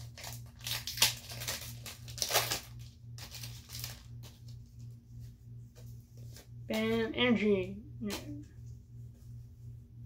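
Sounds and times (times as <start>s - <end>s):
foil wrapper tearing and crinkling: 0.0s - 4.4s.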